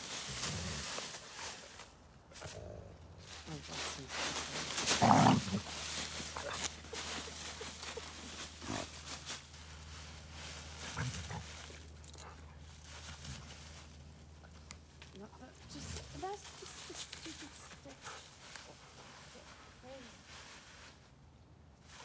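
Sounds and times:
dry leaves rustling: 0:00.0 - 0:22.0
dog growling: 0:04.9 - 0:05.7.

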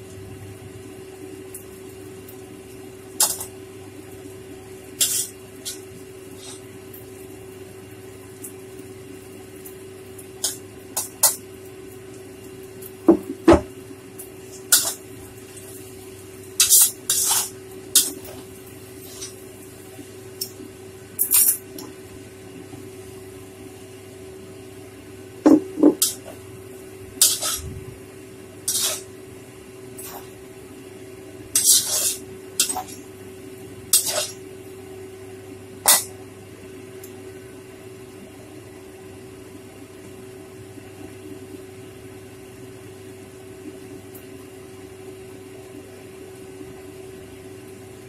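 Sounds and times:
steady low hum: 0:00.0 - 0:48.0
metal spatula scraping a wok: 0:05.0 - 0:05.8, 0:16.6 - 0:18.3, 0:19.0 - 0:19.4, 0:27.1 - 0:27.8, 0:28.7 - 0:29.1, 0:31.6 - 0:33.0, 0:33.9 - 0:34.4, 0:35.9 - 0:36.1.

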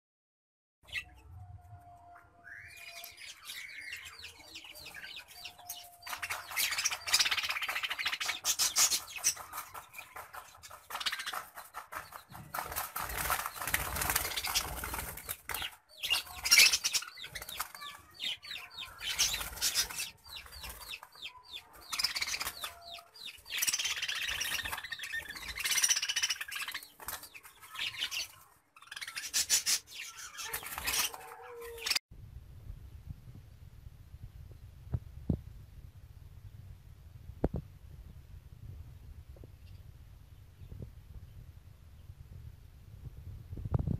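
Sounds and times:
budgerigars chattering and chirping: 0:02.5 - 0:32.0.

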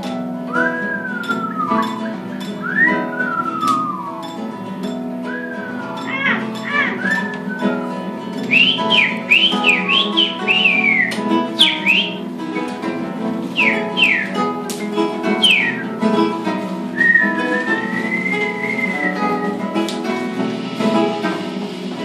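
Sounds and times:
acoustic guitars playing: 0:00.0 - 0:22.0
person whistling bird-like calls: 0:00.5 - 0:04.4, 0:05.2 - 0:12.2, 0:13.6 - 0:14.6, 0:15.2 - 0:16.0, 0:17.0 - 0:19.6.

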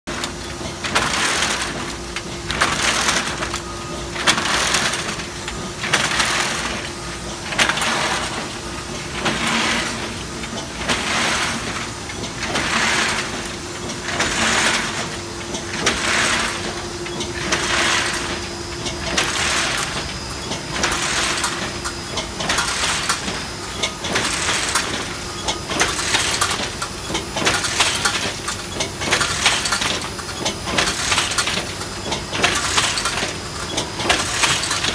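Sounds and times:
steady machine hum: 0:00.1 - 0:34.9
die cutter clatter and hiss: 0:09.2 - 0:34.9.

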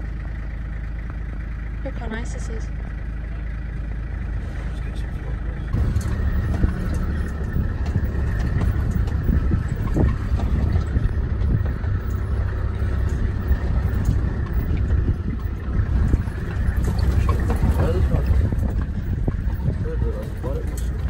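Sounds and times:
vehicle engine and tyres rumbling: 0:00.0 - 0:21.0
bodywork knocks and rattles: 0:05.7 - 0:21.0.

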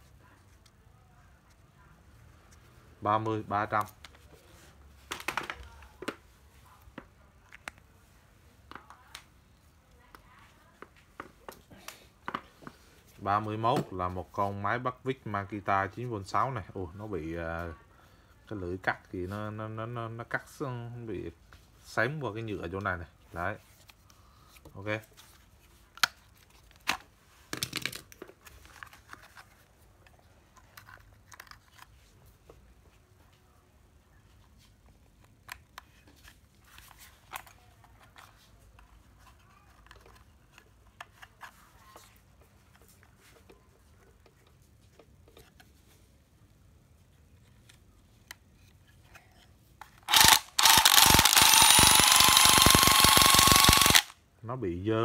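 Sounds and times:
plastic tools clicking and knocking: 0:26.8 - 0:29.6
screwdriver handling clicks: 0:50.1 - 0:54.1.

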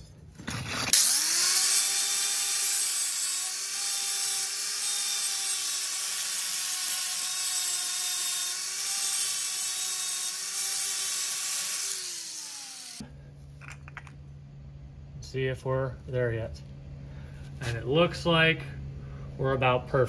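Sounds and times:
power grinder grinding steel: 0:00.4 - 0:13.0.

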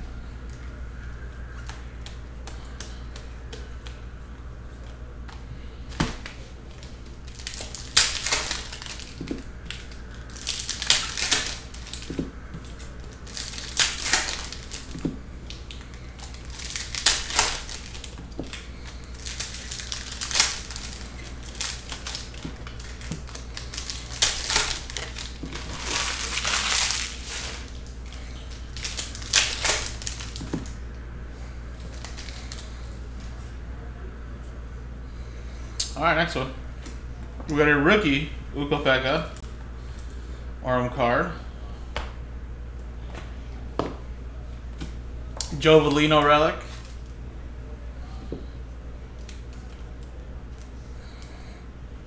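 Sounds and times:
foil wrappers crinkling: 0:05.7 - 0:30.8, 0:31.7 - 0:32.9.

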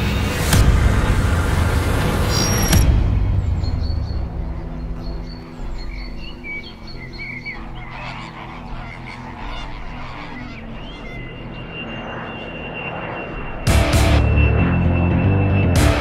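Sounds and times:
low steady drone: 0:00.0 - 0:16.0
flock of birds calling: 0:03.4 - 0:13.8.

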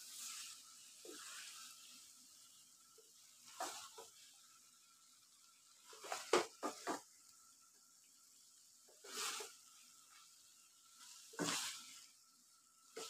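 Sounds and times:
spatula scraping frying pan: 0:00.0 - 0:04.5, 0:05.8 - 0:07.0, 0:08.9 - 0:12.2.

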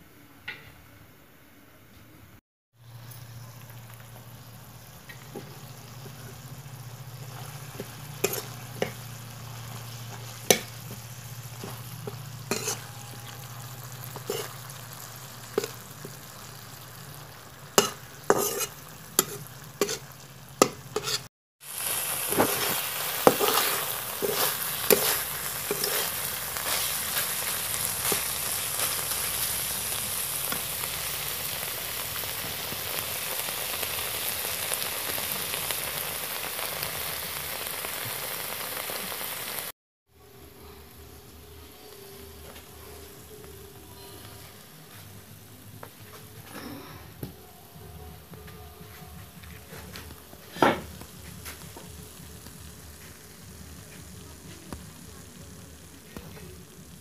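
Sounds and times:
food sizzling in a wok: 0:02.8 - 0:39.8, 0:40.6 - 0:44.9, 0:49.0 - 0:57.0
metal spatula scraping a wok: 0:07.2 - 0:16.6, 0:17.7 - 0:21.3, 0:22.0 - 0:29.7.

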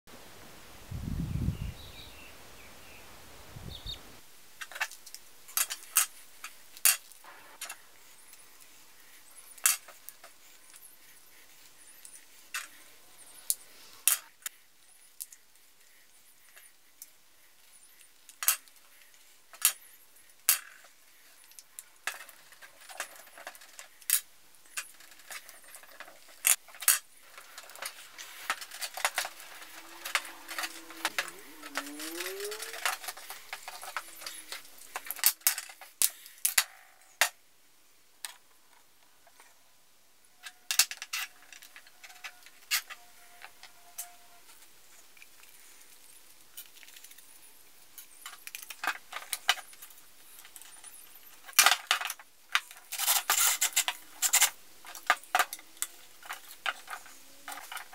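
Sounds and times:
metal tools clicking: 0:21.5 - 0:36.7
tools scraping a wheel: 0:22.1 - 0:36.3, 0:52.7 - 0:57.9.

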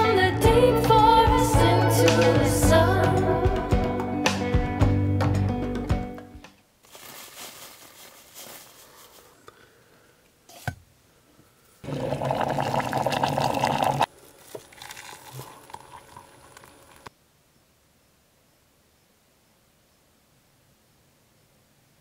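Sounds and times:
hot water pouring into mug: 0:11.8 - 0:17.1.

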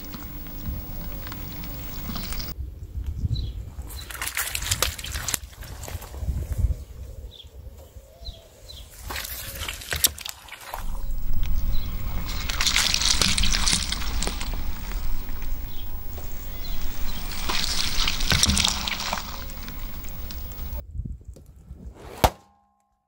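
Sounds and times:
glass crunching: 0:00.0 - 0:02.6, 0:10.8 - 0:20.8
tyre rolling rumble: 0:00.0 - 0:02.6, 0:10.8 - 0:20.8
water balloons squashing: 0:00.0 - 0:02.6, 0:09.7 - 0:20.8.

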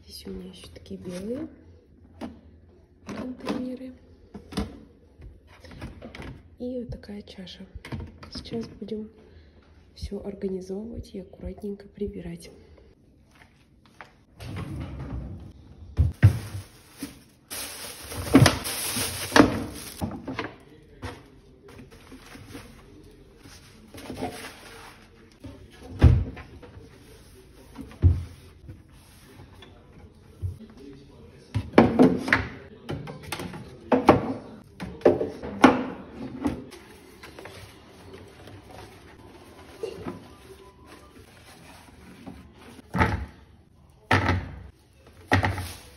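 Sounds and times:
plastic items knocking in drawer: 0:16.0 - 0:20.5, 0:45.2 - 0:45.9
rustling: 0:16.1 - 0:20.0.

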